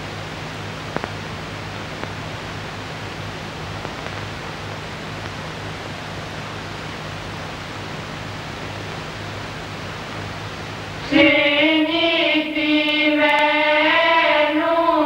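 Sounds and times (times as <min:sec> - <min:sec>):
film soundtrack hiss: 0:00.0 - 0:15.0
faint clicks: 0:00.9 - 0:02.2, 0:03.7 - 0:05.5.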